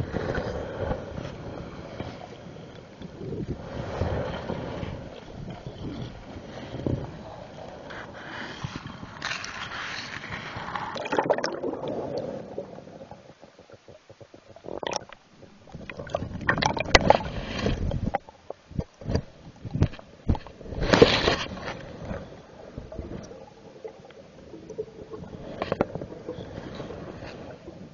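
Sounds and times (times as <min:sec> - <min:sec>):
camera scraping underwater: 0:00.0 - 0:02.4, 0:03.0 - 0:27.9
water gurgling against microphone: 0:10.6 - 0:27.9.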